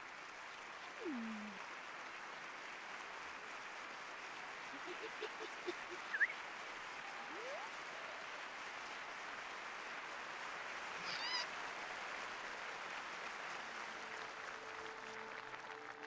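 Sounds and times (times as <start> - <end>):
rushing noise like applause: 0.0 - 16.0
wavering high-pitched cry: 7.3 - 7.9.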